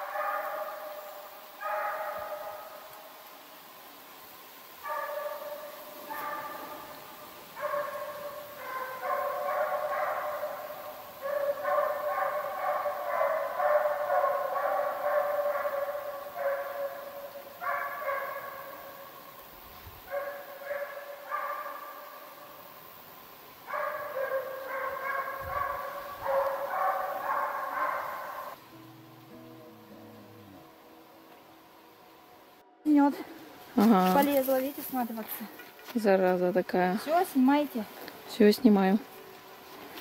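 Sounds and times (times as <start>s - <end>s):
hounds baying: 0.0s - 3.0s, 4.8s - 19.2s, 20.1s - 22.2s, 23.7s - 28.6s.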